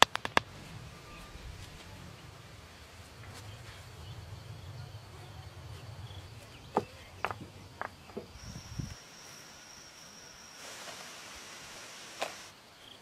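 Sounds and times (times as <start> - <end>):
rustle: 0.0 - 13.0
high-pitched insect drone: 8.4 - 13.0.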